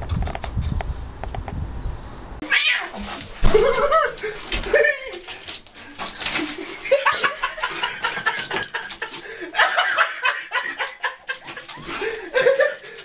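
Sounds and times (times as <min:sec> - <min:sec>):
people laughing: 0:03.4 - 0:05.4, 0:06.0 - 0:13.0.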